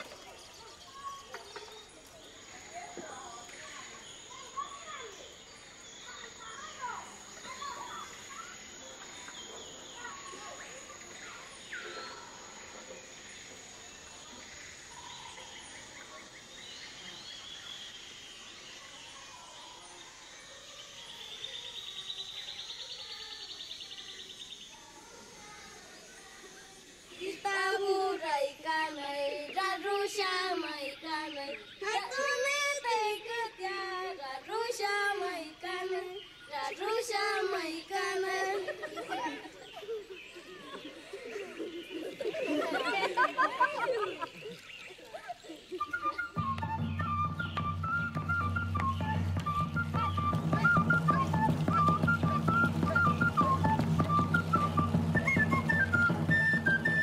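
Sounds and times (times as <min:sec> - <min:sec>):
bird calls: 0:00.0 - 0:28.1, 0:28.9 - 0:57.0
high voice singing unaccompanied: 0:27.2 - 0:38.9
bird whistles: 0:45.7 - 0:57.0.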